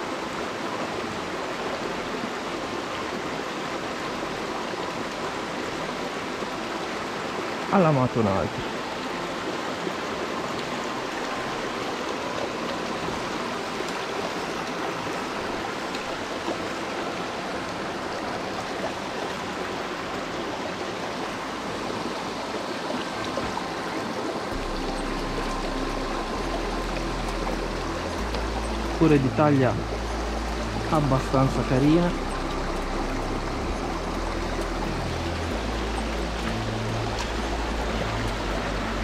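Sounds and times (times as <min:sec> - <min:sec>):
mountain torrent rushing: 0:00.0 - 0:39.0.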